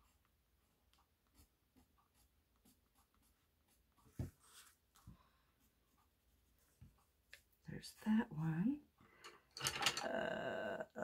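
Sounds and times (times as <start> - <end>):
pencil scratching on paper: 0.0 - 4.8.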